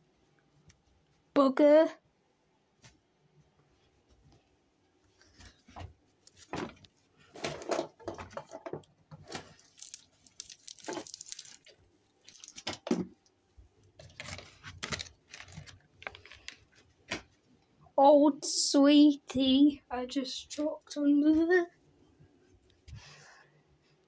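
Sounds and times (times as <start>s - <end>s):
plush toys rustling: 5.0s - 12.9s, 13.9s - 17.4s.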